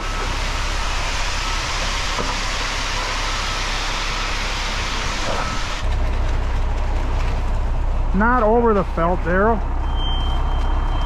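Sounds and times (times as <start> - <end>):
concrete hissing down chute: 0.0 - 5.8
truck engine running: 0.0 - 11.0.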